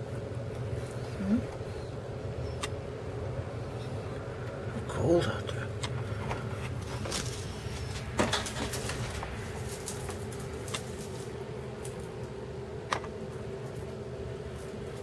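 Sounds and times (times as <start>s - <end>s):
low indoor hum: 0.0s - 15.0s.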